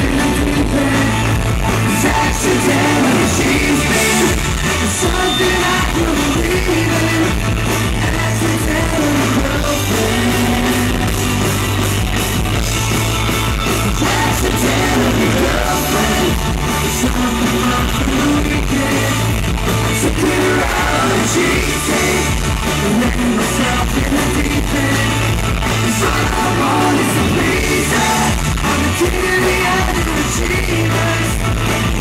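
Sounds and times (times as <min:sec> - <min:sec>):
person singing: 0:00.0 - 0:11.4, 0:13.8 - 0:19.3, 0:19.9 - 0:31.6
bass guitar: 0:00.0 - 0:32.0
drums: 0:00.0 - 0:32.0
electric guitars: 0:00.0 - 0:32.0.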